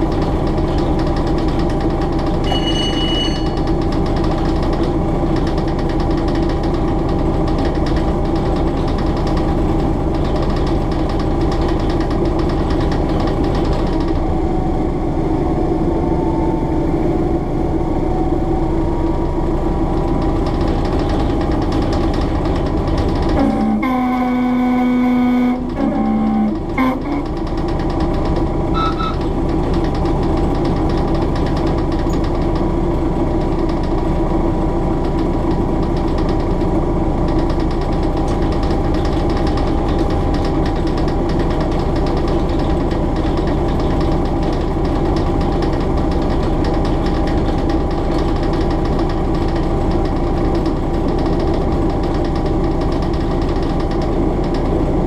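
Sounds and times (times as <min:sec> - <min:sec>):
diesel engine thumping: 0:00.0 - 0:55.0
loud pitched tone: 0:02.5 - 0:03.6, 0:28.8 - 0:29.2.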